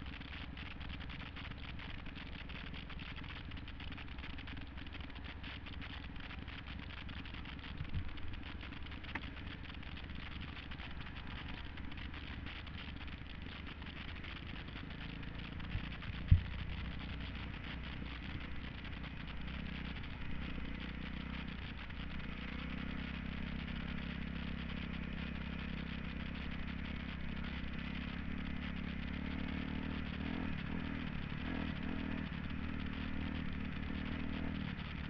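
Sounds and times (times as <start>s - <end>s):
dirt bike engine running: 0.0s - 35.0s.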